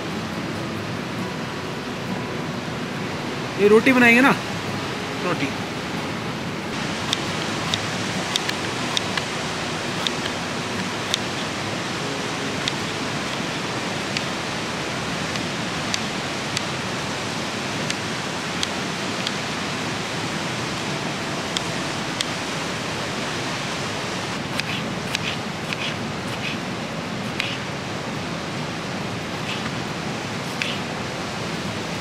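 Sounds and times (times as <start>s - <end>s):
river water rushing: 0.0s - 32.0s
knife slicing onion: 24.4s - 26.6s, 27.2s - 27.7s, 29.3s - 29.8s, 30.4s - 30.9s
knife clicking on cutting board: 24.6s - 26.6s, 27.3s - 27.6s, 30.5s - 30.8s.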